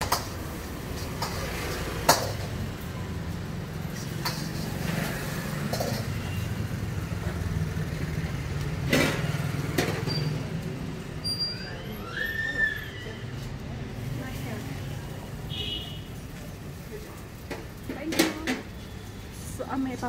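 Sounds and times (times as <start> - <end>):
street traffic: 0.0 - 20.0.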